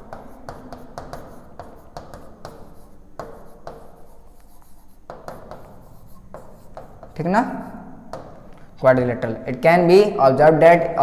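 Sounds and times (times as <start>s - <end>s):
chalk scratching on blackboard: 0.0s - 8.4s.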